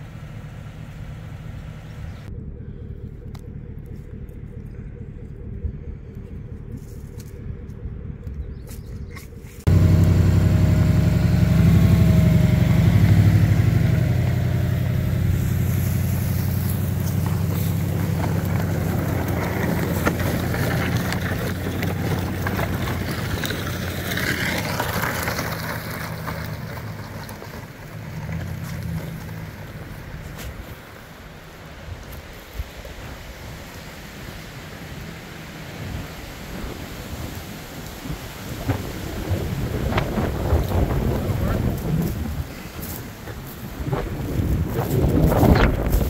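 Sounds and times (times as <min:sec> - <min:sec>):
truck engine running: 0:00.0 - 0:32.0.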